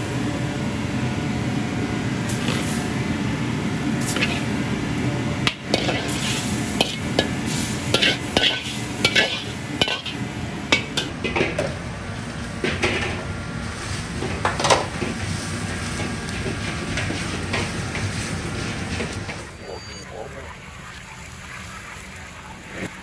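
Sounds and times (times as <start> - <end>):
low rumble of busy kitchen: 0.0 - 23.0
metal utensils clinking on a wok: 5.5 - 11.1.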